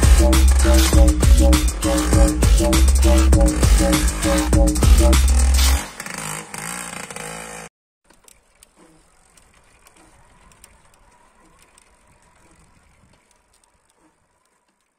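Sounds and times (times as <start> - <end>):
electronic hip-hop with heavy bass: 0.0 - 5.8
faint scattered clicks: 8.1 - 14.9.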